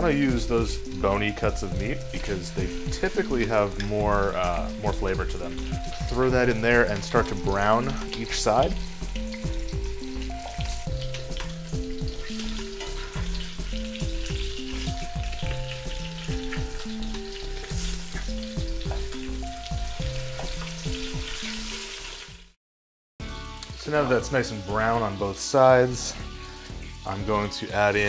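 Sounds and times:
meat sizzling and crackling in oil: 0.0 - 22.6, 23.3 - 28.0
metal tongs turning meat: 0.8 - 18.4.

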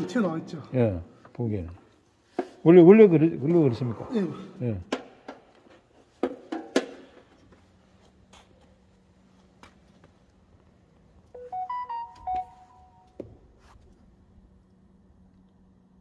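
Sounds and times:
faint steady hum: 0.0 - 16.0
electronic beep jingle: 11.4 - 13.2.

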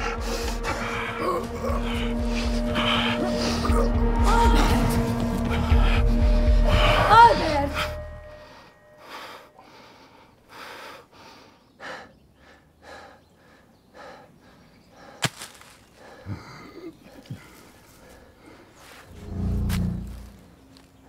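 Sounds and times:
person breathing hard: 0.0 - 19.1.

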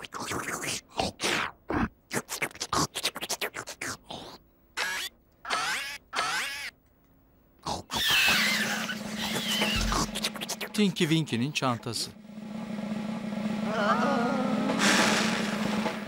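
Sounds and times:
short choppy cartoon noises: 0.0 - 6.7, 7.7 - 11.1
wavering warbling cartoon calls: 4.8 - 6.8, 7.8 - 10.9.

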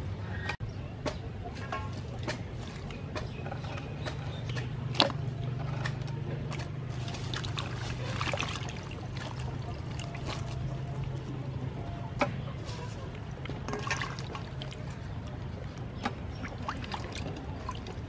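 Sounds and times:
steady low hum: 0.0 - 18.0
hands swishing vegetables in water: 1.5 - 11.8, 12.6 - 18.0
water splashing and trickling: 1.5 - 18.0.

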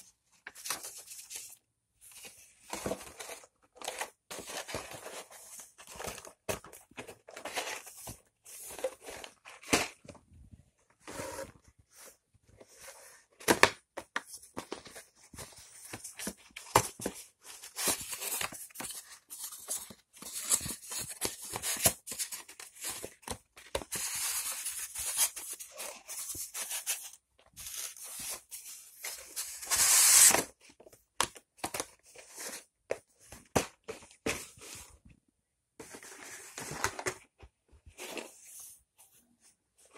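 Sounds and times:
cardboard boxes rustling: 0.6 - 10.2, 11.0 - 31.0.

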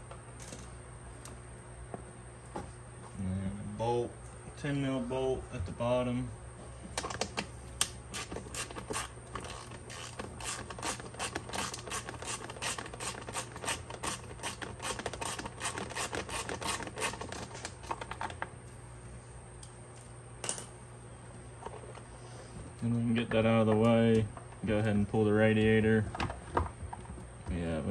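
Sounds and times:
hand ratchet clicking: 8.1 - 17.2.

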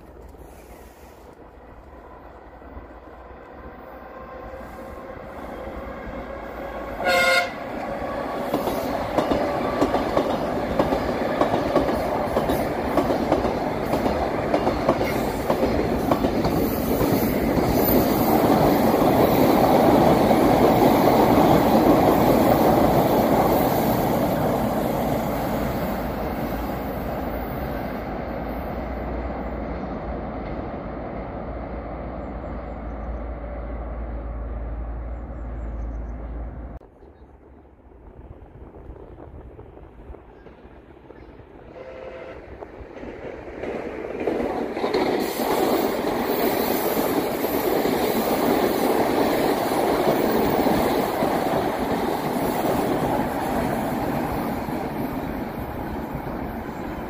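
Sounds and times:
train rumble: 0.0 - 57.0
train horn blast: 4.0 - 7.8, 41.7 - 42.7.

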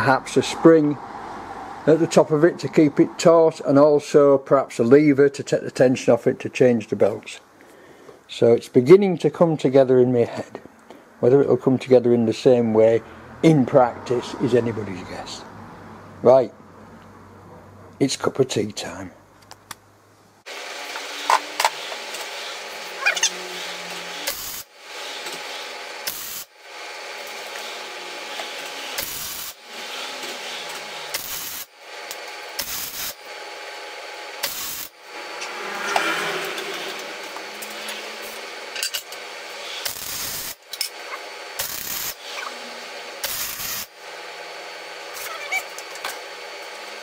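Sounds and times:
welder crackling: 20.5 - 44.0.

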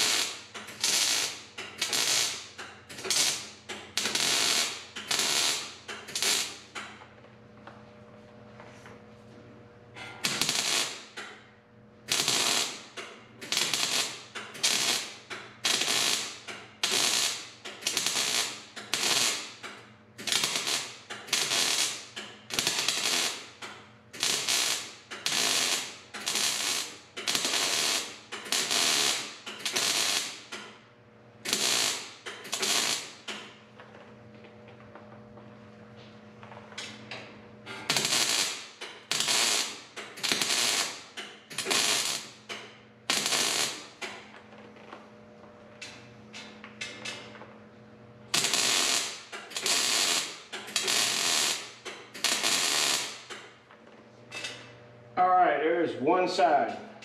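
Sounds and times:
welder spot welding: 0.0 - 6.9, 10.0 - 30.8, 31.4 - 33.6, 36.8 - 44.3, 48.3 - 53.6.

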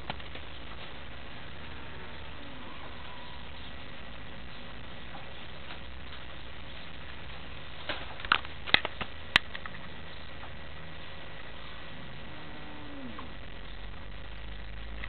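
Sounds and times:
steady background hiss: 0.0 - 15.0
sharp clicks and taps: 7.9 - 9.8.

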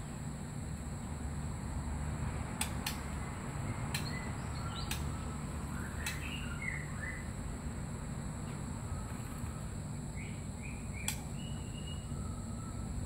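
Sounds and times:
bird chirping: 3.2 - 7.4, 8.9 - 12.9.

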